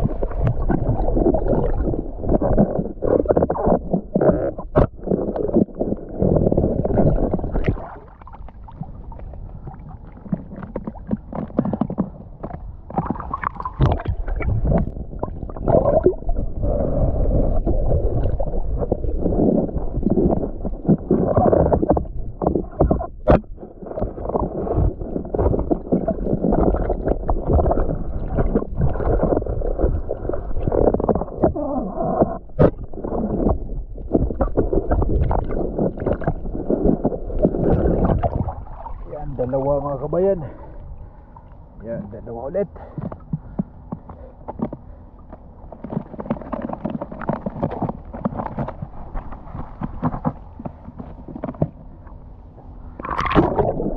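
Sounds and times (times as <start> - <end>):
water sloshing and gurgling: 0.0 - 53.9.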